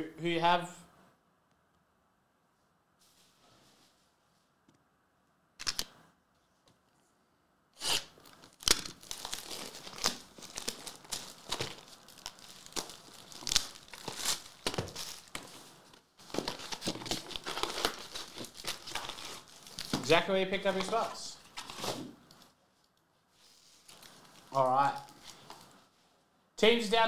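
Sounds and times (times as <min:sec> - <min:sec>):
plastic wrap crinkling: 0:07.8 - 0:25.9
paper rustling: 0:08.3 - 0:22.5.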